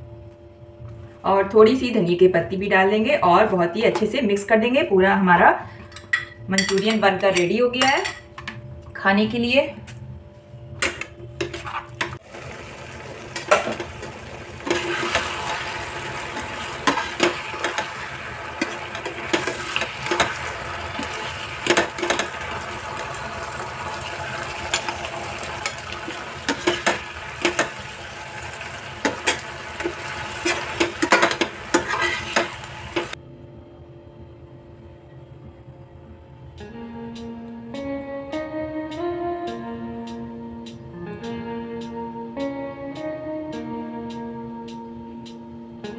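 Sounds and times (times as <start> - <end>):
sauce sizzling: 12.2 - 33.2
spoon clinking and scraping pan: 29.0 - 33.1.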